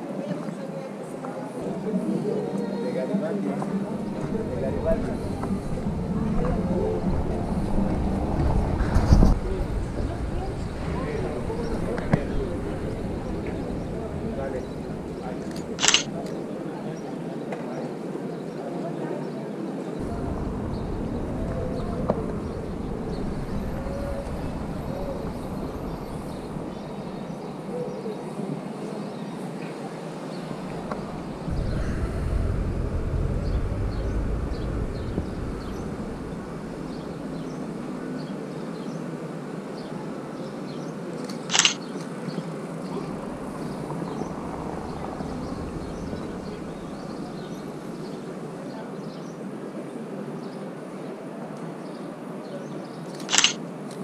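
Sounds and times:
faint distant voices: 0:00.0 - 0:54.0
traffic running steadily: 0:00.0 - 0:54.0
vehicle passing: 0:03.2 - 0:16.5, 0:20.0 - 0:27.3, 0:30.4 - 0:38.4, 0:42.8 - 0:48.6.

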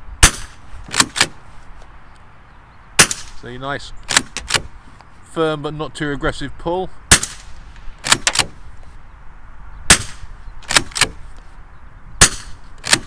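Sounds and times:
rifle shots: 0:00.2 - 0:01.4, 0:03.0 - 0:03.4, 0:04.1 - 0:04.7, 0:07.1 - 0:08.6, 0:09.9 - 0:11.3, 0:12.2 - 0:13.0
rifle bolt clacking: 0:04.1 - 0:04.7, 0:07.2 - 0:08.6, 0:12.2 - 0:13.0.

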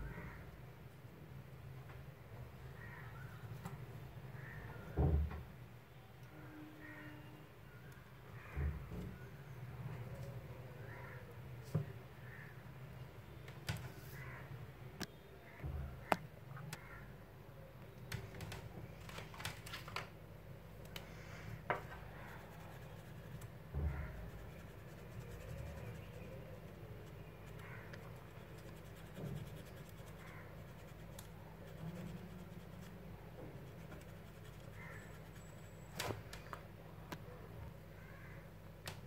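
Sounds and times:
low steady hum: 0:20.1 - 0:39.0
pencil tapping and scratching paper: 0:22.3 - 0:32.9, 0:33.6 - 0:35.5.

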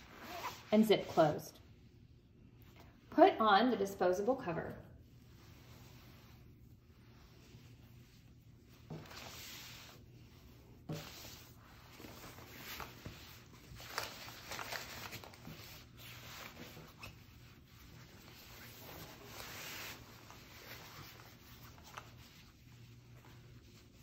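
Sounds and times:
plastic cover rustling: 0:10.9 - 0:24.0.

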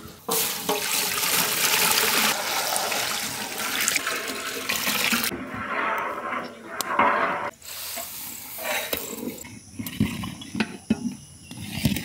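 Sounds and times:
milk pouring and splashing: 0:00.3 - 0:05.4.

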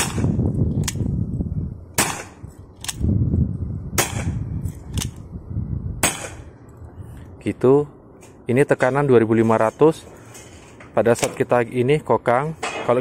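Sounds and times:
air pistol shots: 0:00.0 - 0:01.1, 0:02.0 - 0:03.1, 0:04.0 - 0:05.2, 0:06.0 - 0:06.5.

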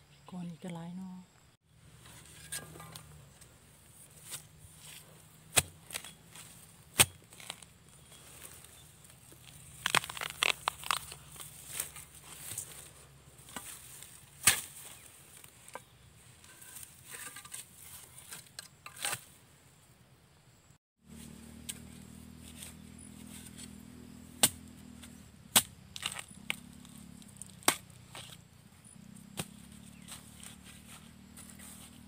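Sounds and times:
crunching dry bamboo litter: 0:01.9 - 0:19.1, 0:21.1 - 0:32.0
sharp digging knocks: 0:02.0 - 0:08.5, 0:13.4 - 0:15.9, 0:24.4 - 0:26.7, 0:27.4 - 0:28.4, 0:29.2 - 0:31.9.

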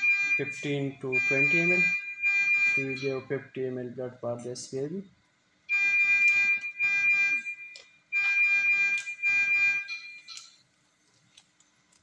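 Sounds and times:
high-pitched alarm tone: 0:00.0 - 0:03.3, 0:05.7 - 0:10.5.

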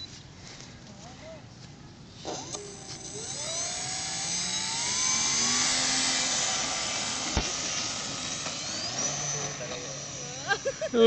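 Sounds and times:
electric motor propeller whine: 0:02.2 - 0:11.0.

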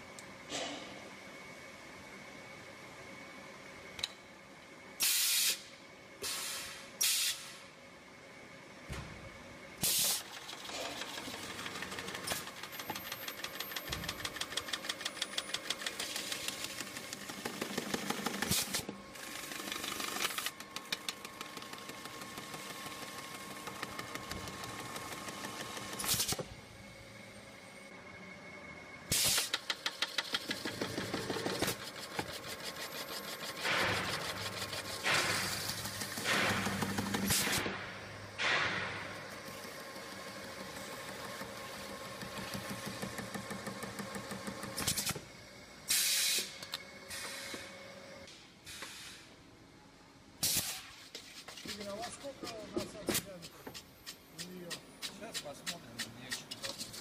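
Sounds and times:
bursts of air hiss: 0:05.0 - 0:07.6, 0:45.9 - 0:47.7, 0:48.6 - 0:49.4, 0:50.4 - 0:51.0
machine rattling clatter: 0:10.0 - 0:26.3.

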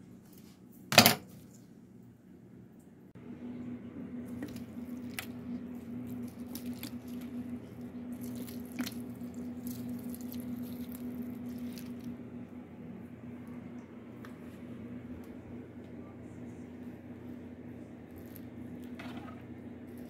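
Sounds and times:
steady low hum: 0:00.0 - 0:20.0
soil clicks and crackles: 0:04.3 - 0:12.2.

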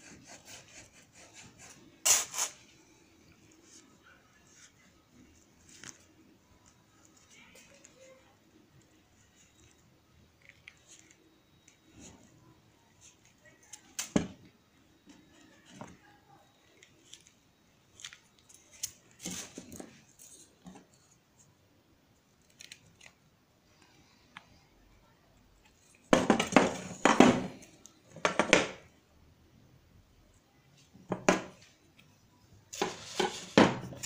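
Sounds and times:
hand tools handled on wooden table: 0:32.7 - 0:34.0.

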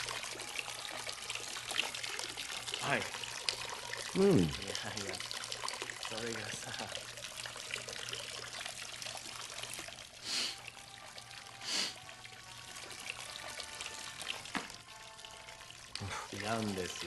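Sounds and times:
water pouring and splashing: 0:00.0 - 0:17.0.

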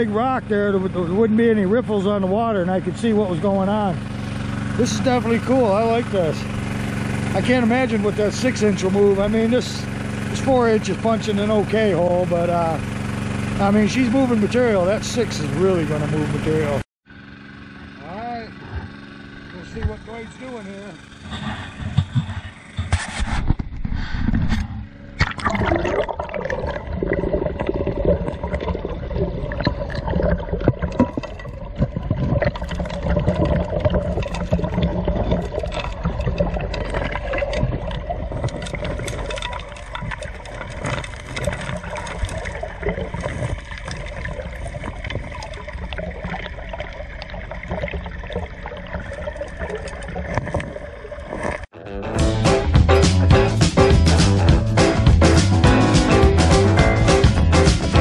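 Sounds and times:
dredge motor hum underwater: 0:00.0 - 0:58.0
gravel and rocks clicking: 0:26.4 - 0:51.7.

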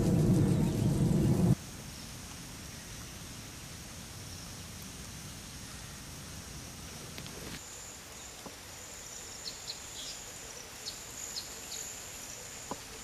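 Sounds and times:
birds chirping: 0:00.0 - 0:01.6
low rumbling noise: 0:00.0 - 0:01.6.

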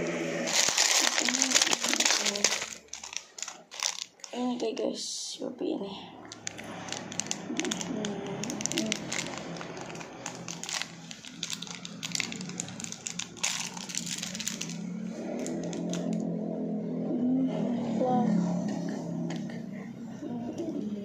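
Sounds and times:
plastic candy wrapper crinkling: 0:00.4 - 0:05.0, 0:06.2 - 0:16.2.

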